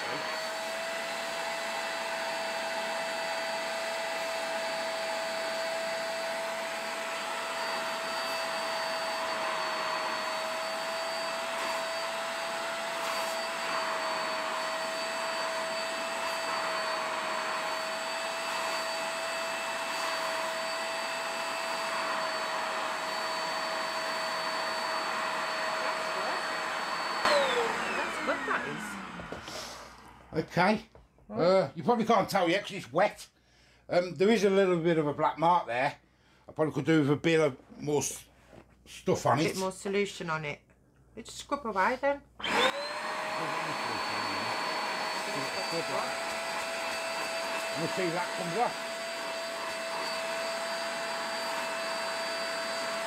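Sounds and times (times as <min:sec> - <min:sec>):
suction motor whining: 0:00.0 - 0:30.4, 0:42.4 - 0:53.0
suction on wet fabric: 0:11.3 - 0:22.0, 0:42.5 - 0:53.0.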